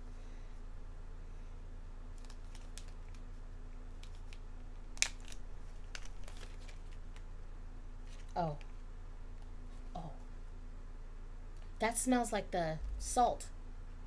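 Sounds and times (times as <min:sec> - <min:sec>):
faint steady hum: 0:00.0 - 0:14.0
packaging clicks and crinkles: 0:02.2 - 0:07.3, 0:08.1 - 0:08.8.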